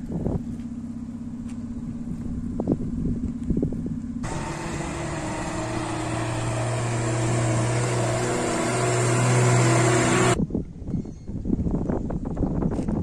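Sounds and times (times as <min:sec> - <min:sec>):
road and wind noise: 0:00.0 - 0:13.0
truck engine hum: 0:04.2 - 0:10.4.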